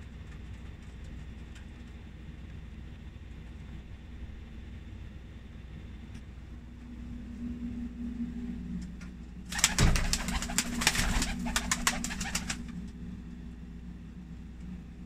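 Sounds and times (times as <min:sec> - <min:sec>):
pigeon wings flapping: 0:09.5 - 0:12.8.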